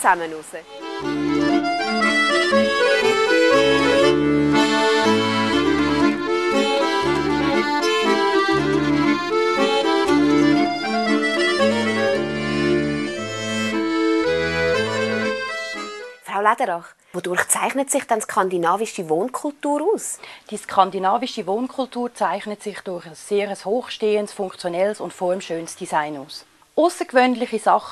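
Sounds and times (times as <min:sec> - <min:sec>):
accordion music: 0:00.1 - 0:16.3
bass line: 0:00.8 - 0:16.1.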